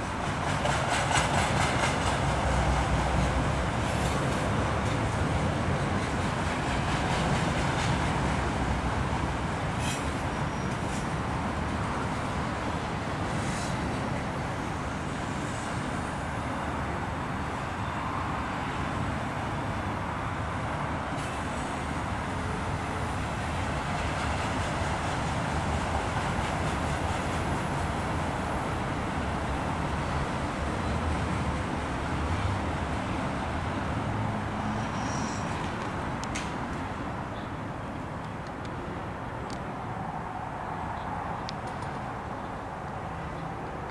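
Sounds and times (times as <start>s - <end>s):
steel wheels rumbling on rail: 0.0s - 16.2s, 21.2s - 36.7s.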